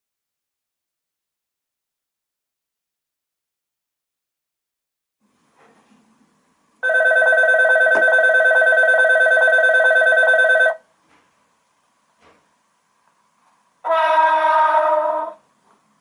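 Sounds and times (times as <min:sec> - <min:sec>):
electric bell ringing: 0:06.8 - 0:10.8.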